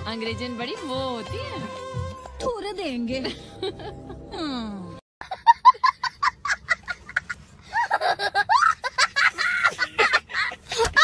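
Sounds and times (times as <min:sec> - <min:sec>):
small child laughing: 0:05.3 - 0:11.0.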